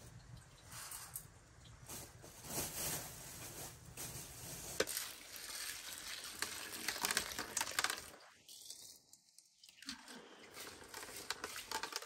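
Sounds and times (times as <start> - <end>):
plastic bag crinkling: 1.8 - 8.2
lentils pattering into metal bowl: 1.9 - 8.8.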